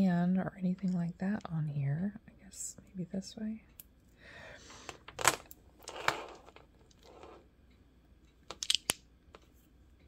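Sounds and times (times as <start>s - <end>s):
plastic beads clicking: 8.5s - 9.0s.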